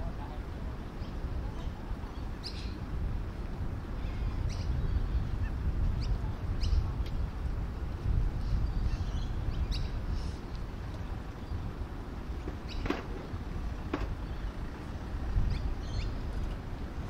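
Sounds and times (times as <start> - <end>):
steady low rumble: 0.0 - 17.0
high bird calls and chirps: 0.8 - 2.8, 4.0 - 7.2, 8.5 - 10.4, 12.6 - 13.1, 15.4 - 16.2.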